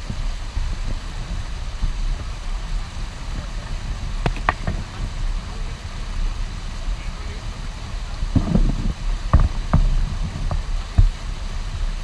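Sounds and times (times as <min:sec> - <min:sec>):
white water rushing over weir: 0:00.0 - 0:12.0.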